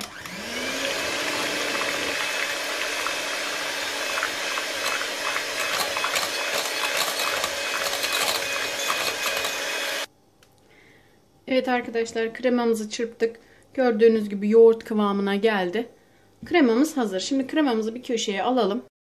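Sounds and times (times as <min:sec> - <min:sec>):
electric hand mixer whirring: 0:00.0 - 0:10.1
beaters clicking on bowl: 0:01.7 - 0:09.8.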